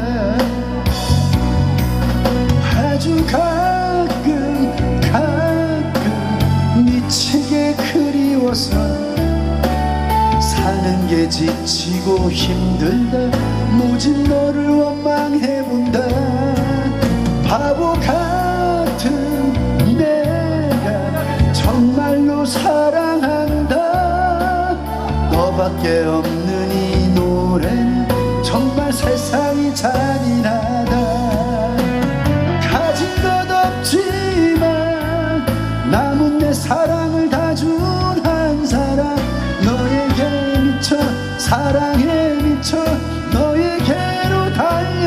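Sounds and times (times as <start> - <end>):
instrumental backing music: 0.0 - 45.0
man singing ballad: 0.0 - 45.0.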